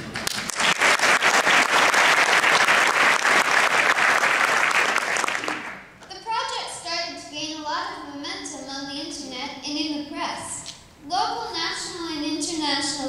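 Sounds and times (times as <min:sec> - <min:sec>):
audience applauding: 0:00.0 - 0:05.9.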